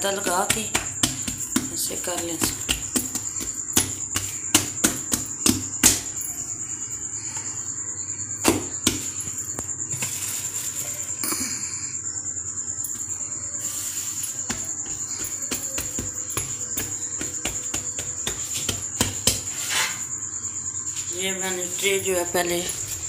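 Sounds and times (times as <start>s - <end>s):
hands patting pizza dough: 0.0s - 6.3s, 8.4s - 10.2s, 13.6s - 19.7s.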